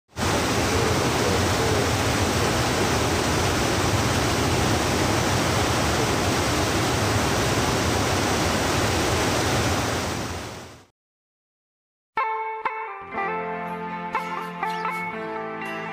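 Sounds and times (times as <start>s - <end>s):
stream water rushing: 0.1s - 10.8s.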